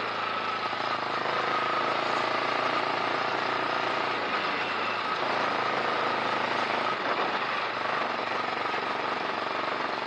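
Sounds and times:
motorcycle engine drone: 0:00.0 - 0:10.0
road rumble: 0:00.0 - 0:10.0
wind noise: 0:04.2 - 0:10.0.

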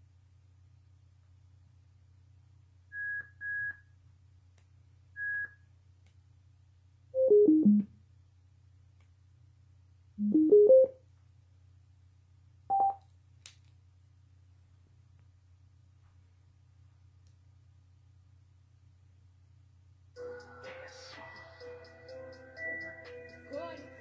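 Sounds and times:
short high beeps: 0:10.2 - 0:10.9, 0:12.7 - 0:13.0.

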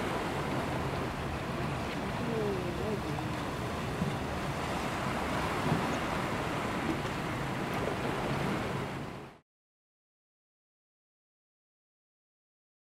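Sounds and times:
sea water rushing: 0:00.0 - 0:09.4
wind: 0:00.0 - 0:09.4.

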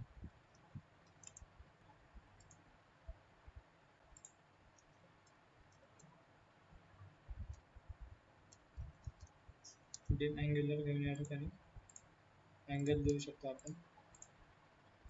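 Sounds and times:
keyboard typing: 0:00.4 - 0:01.6, 0:04.1 - 0:06.2, 0:08.5 - 0:10.2, 0:11.1 - 0:12.1, 0:12.8 - 0:14.4
mouse clicks: 0:00.5 - 0:01.5, 0:02.4 - 0:02.6, 0:04.1 - 0:06.2, 0:08.5 - 0:10.2, 0:11.8 - 0:12.1, 0:12.8 - 0:14.4.

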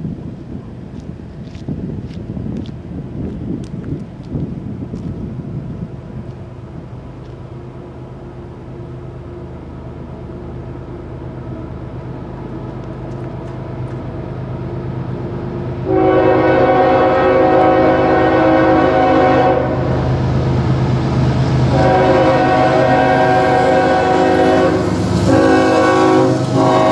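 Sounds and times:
diesel locomotive rumble: 0:00.0 - 0:26.9
train air horn: 0:15.8 - 0:20.0, 0:21.7 - 0:26.9.

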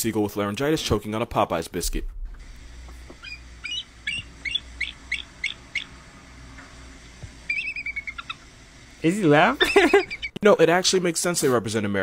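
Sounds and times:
eagle high chirps: 0:03.1 - 0:06.1, 0:07.4 - 0:08.6, 0:09.6 - 0:10.4
eagle chattering trill: 0:03.2 - 0:06.0, 0:07.4 - 0:08.5, 0:09.4 - 0:10.4.

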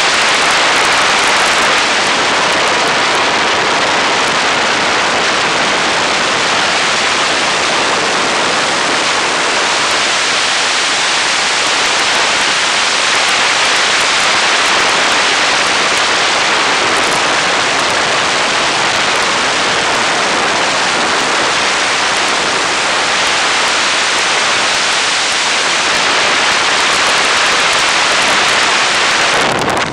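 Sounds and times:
wind rushing in open cockpit: 0:00.0 - 0:29.9.

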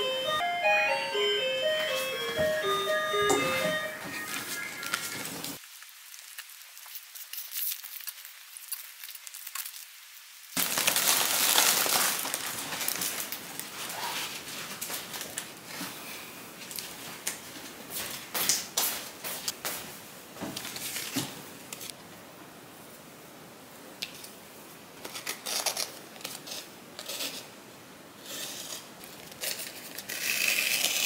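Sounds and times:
balloons crinkling and rustling: 0:04.0 - 0:10.0, 0:10.6 - 0:18.3, 0:29.0 - 0:31.0.

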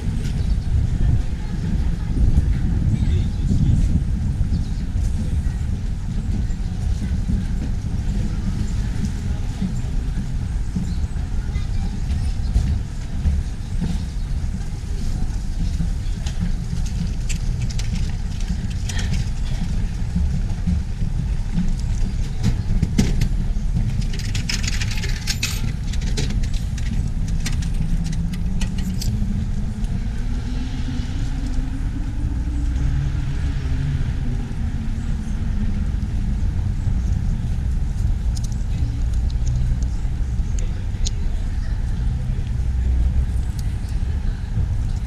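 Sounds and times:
road traffic rumble: 0:00.0 - 0:45.0
vehicle passing: 0:26.6 - 0:41.0.

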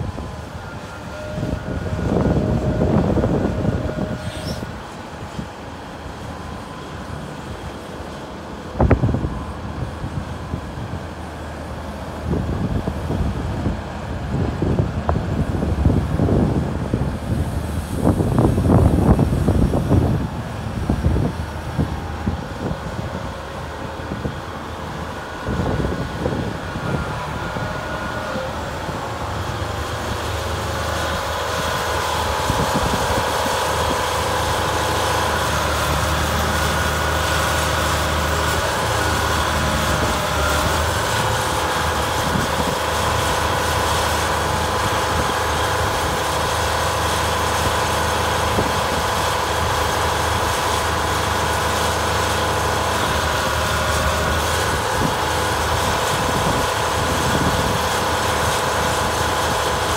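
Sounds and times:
excavator diesel engine running: 0:00.0 - 0:59.9
hydraulic boom moving: 0:00.6 - 0:04.8.

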